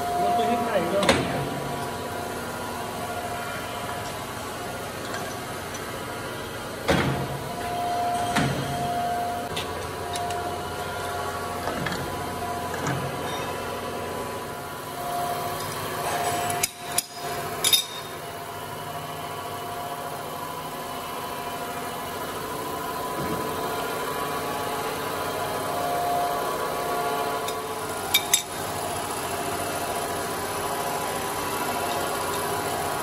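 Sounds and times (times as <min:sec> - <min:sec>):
workshop machinery humming: 0:00.0 - 0:33.0.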